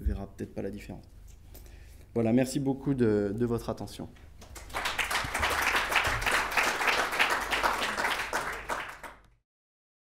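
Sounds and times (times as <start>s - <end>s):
audience applauding: 4.4s - 9.3s.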